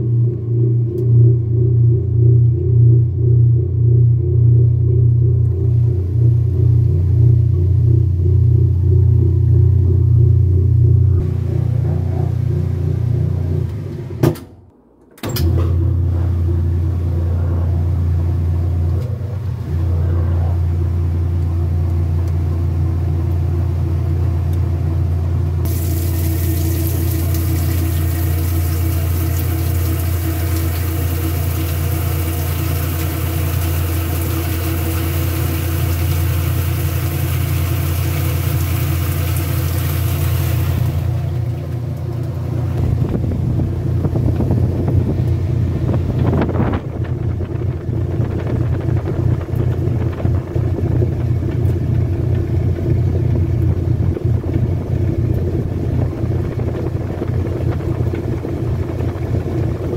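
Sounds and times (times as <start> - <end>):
washing machine motor hum: 0.0 - 59.9
water spraying into drum: 25.7 - 43.4.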